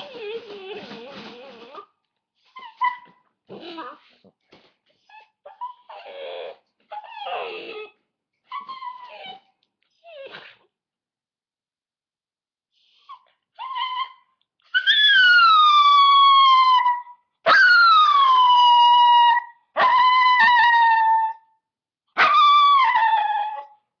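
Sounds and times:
dog howling: 0:14.8 - 0:21.5, 0:22.2 - 0:23.8.

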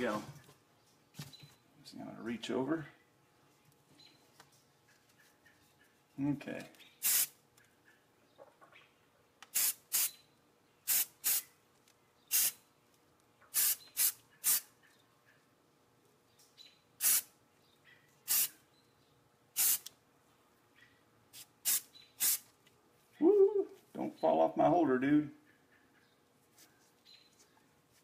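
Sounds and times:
aerosol can spray bursts: 0:07.0 - 0:07.4, 0:09.5 - 0:10.1, 0:10.9 - 0:11.5, 0:12.3 - 0:12.6, 0:13.5 - 0:14.7, 0:17.0 - 0:17.3, 0:18.3 - 0:18.6, 0:19.6 - 0:19.9, 0:21.4 - 0:22.5.

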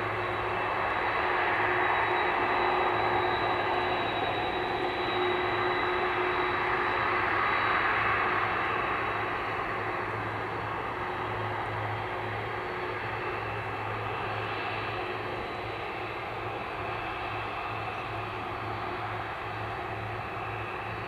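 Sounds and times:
jet engines whining: 0:00.0 - 0:21.0.

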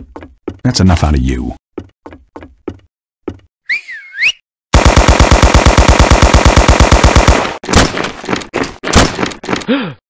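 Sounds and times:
automatic gunfire: 0:04.8 - 0:08.0.

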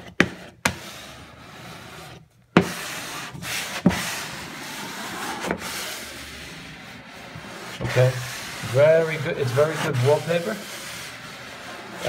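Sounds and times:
plastic smoother scraping wallpaper: 0:00.8 - 0:12.0.

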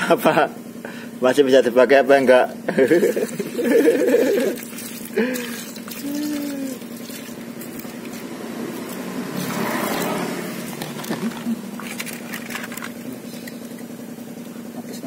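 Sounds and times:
steady low hum: 0:00.0 - 0:15.0
water splashing over circuit board: 0:03.0 - 0:08.2.

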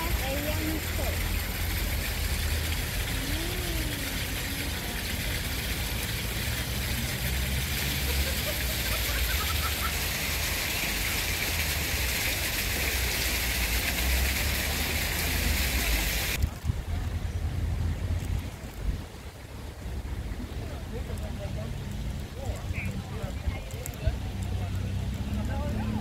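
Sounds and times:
faint voices: 0:00.0 - 0:09.2, 0:20.2 - 0:26.0.

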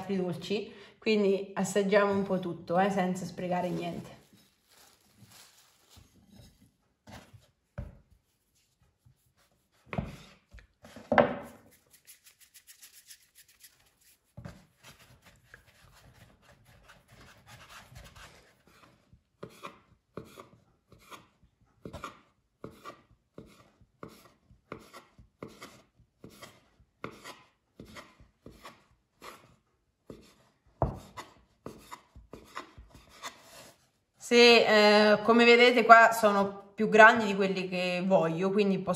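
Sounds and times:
knife cutting dough on wooden board: 0:09.0 - 0:11.8, 0:14.3 - 0:33.8.

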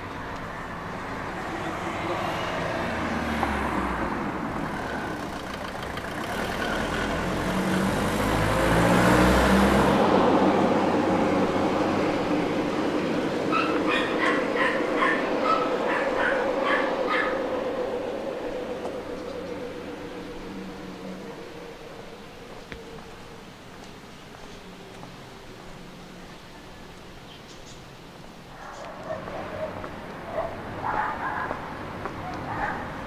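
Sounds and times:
car driving past: 0:00.0 - 0:23.5
dog barking: 0:13.5 - 0:17.4, 0:28.6 - 0:33.0.

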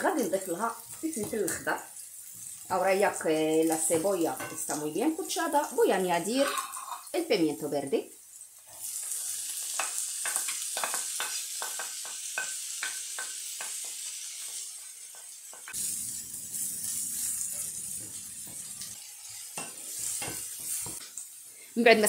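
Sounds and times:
vegetables sizzling in oil: 0:00.0 - 0:22.0
wooden spoon scraping pan: 0:06.3 - 0:07.1.

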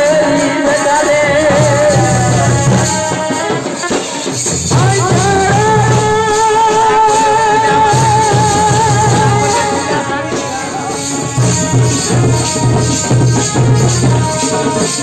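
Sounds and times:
jingling percussion: 0:00.0 - 0:15.0
barrel drums beating: 0:01.2 - 0:15.0.

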